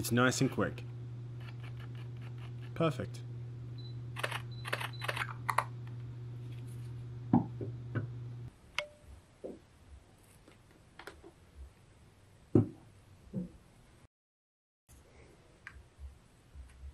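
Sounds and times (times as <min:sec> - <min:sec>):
steady low hum: 0:00.0 - 0:09.1.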